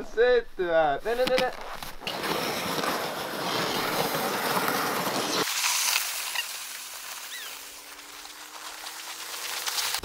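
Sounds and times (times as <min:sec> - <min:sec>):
sled sliding over packed snow: 0:02.0 - 0:10.0.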